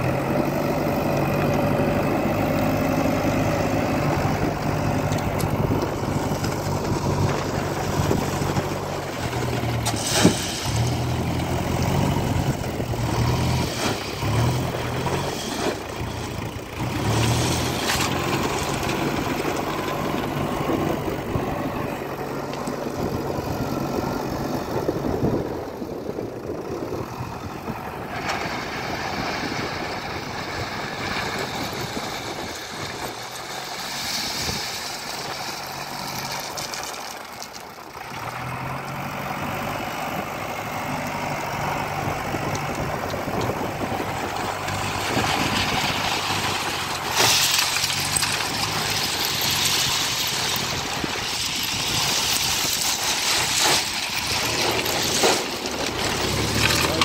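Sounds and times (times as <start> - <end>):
diesel engine working under load: 0.0 - 57.0
crushed stone pouring into truck: 6.2 - 11.8, 28.2 - 37.9, 43.4 - 57.0.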